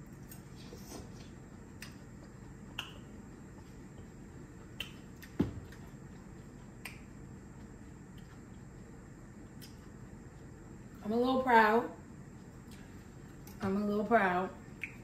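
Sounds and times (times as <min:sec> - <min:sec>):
steady low hum: 0:00.0 - 0:15.0
chewing mouth sounds: 0:00.1 - 0:11.0.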